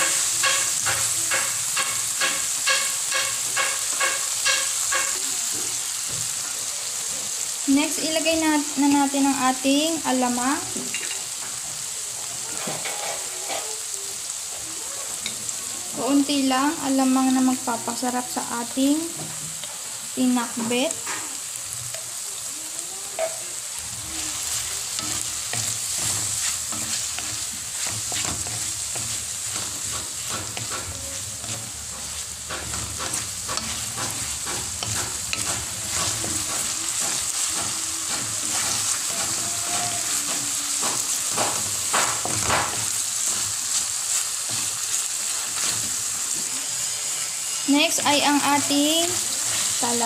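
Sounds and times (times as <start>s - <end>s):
food sizzling in oil: 0.0s - 50.0s
wooden spatula scraping a pan: 12.6s - 13.8s, 23.2s - 50.0s.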